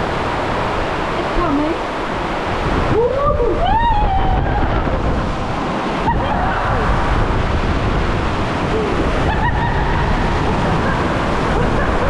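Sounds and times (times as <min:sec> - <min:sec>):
water rushing under a raft: 0:00.0 - 0:12.0
riders yelling and whooping: 0:03.0 - 0:05.0, 0:06.0 - 0:07.2.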